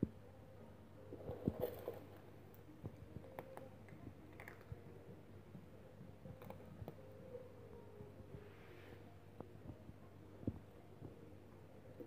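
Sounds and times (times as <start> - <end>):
cats crunching dry kibble: 4.3 - 4.8.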